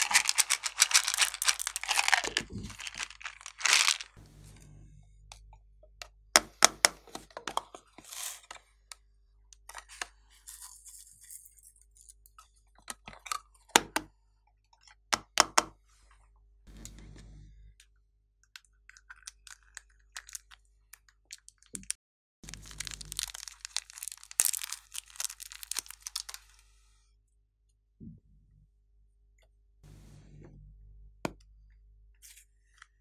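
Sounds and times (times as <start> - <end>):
clay crackling and crunching: 0.0 - 4.2, 21.3 - 26.6.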